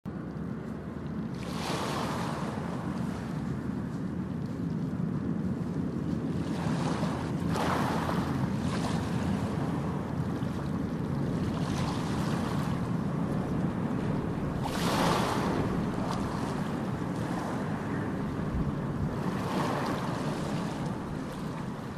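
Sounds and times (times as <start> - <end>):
wind on microphone: 0.2 - 21.9
water churning: 6.1 - 21.9
ship engines rumbling: 7.0 - 21.9.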